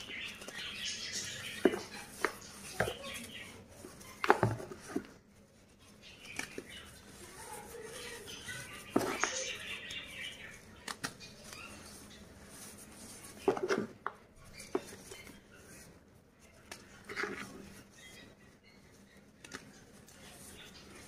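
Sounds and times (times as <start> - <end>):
soft powdery rustle: 0.0 - 21.0.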